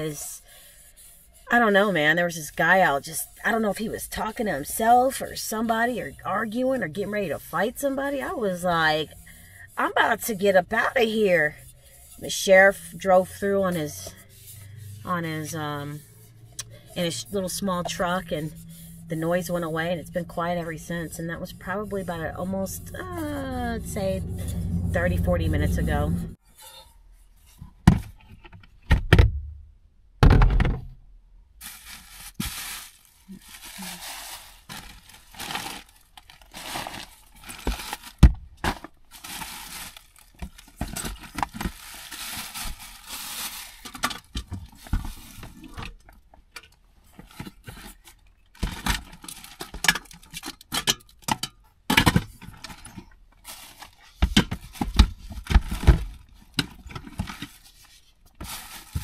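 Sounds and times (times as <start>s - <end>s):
rustling: 31.6s - 46.2s, 52.6s - 59.0s.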